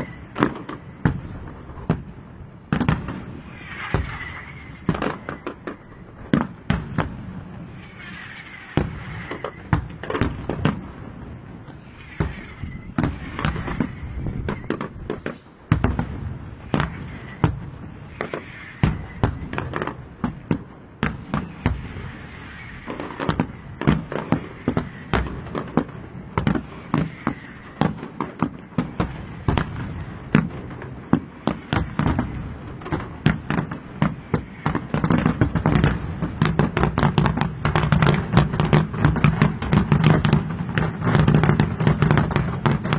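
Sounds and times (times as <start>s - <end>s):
firework crackling: 0.0s - 42.9s
firework shells bursting: 0.0s - 42.9s.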